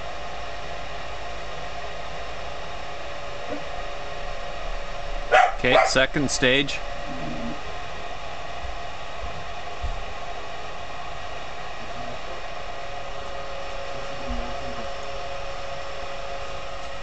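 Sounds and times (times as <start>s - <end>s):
furnace fan whirring with whine: 0.0s - 17.0s.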